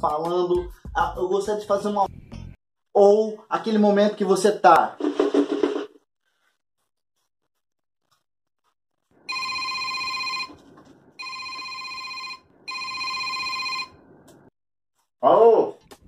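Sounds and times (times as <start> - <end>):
phone ringtone ringing: 9.2 - 10.6, 11.2 - 14.0.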